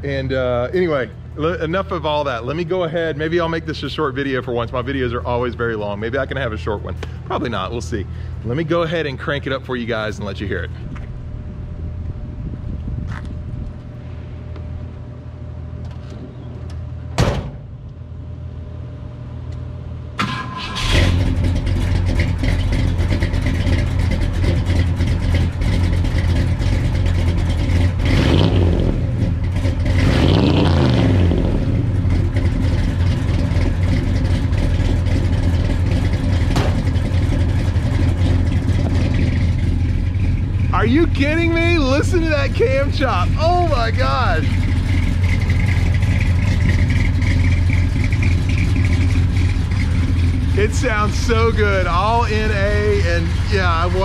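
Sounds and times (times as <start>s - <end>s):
lumpy engine idle: 0.0s - 28.3s, 28.9s - 30.0s, 31.6s - 54.0s
truck door slamming: 17.2s - 17.8s, 36.5s - 37.0s
engine revving: 20.2s - 54.0s
engine cranking: 32.0s - 54.0s.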